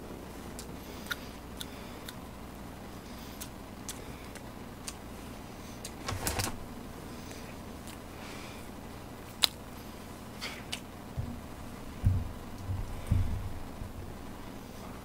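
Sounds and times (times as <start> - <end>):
chewing clicks and smacks: 0.6 - 2.2, 3.4 - 5.0, 9.3 - 9.6
low thump: 12.0 - 14.0.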